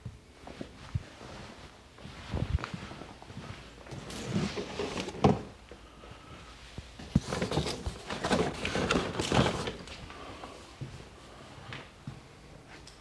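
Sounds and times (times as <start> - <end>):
objects clattering and rustling: 3.8 - 5.6, 6.9 - 10.6.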